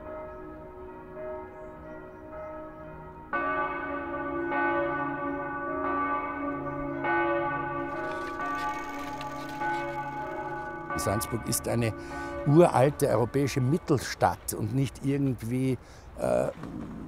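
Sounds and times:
church bells ringing: 0.0s - 16.1s.

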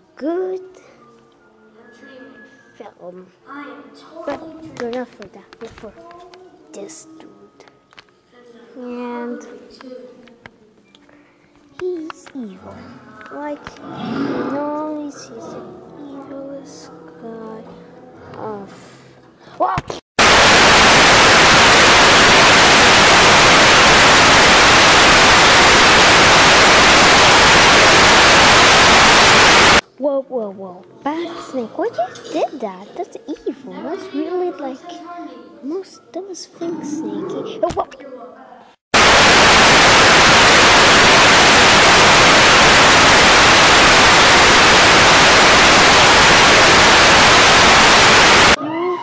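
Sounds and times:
television static hiss: 20.2s - 29.8s, 39.0s - 48.6s.

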